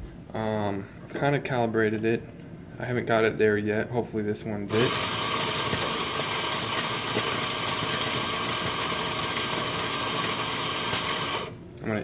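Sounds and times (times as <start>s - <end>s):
coffee grinder running: 4.7s - 11.6s.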